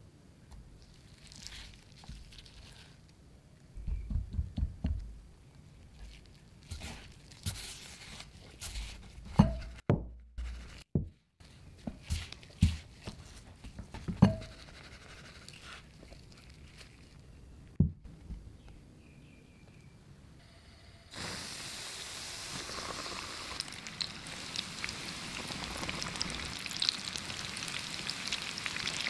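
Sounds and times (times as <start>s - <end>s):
thumps and knocks: 3.8s - 5.2s, 9.2s - 11.2s, 17.8s - 18.5s
soft rustling and scuffing: 10.4s - 14.2s.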